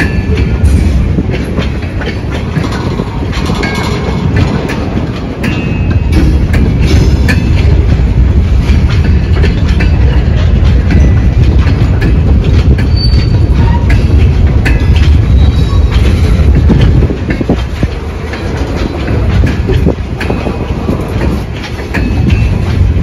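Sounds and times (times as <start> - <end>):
freight train rumbling past: 0.0 - 23.0
wheels clicking over rails: 0.0 - 23.0
wheel squeal: 12.8 - 14.1, 15.2 - 16.4.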